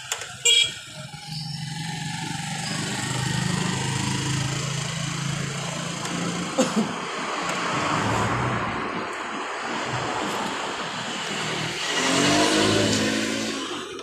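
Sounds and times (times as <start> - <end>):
traffic din: 0.0 - 14.0
car engine revving past: 9.9 - 14.0.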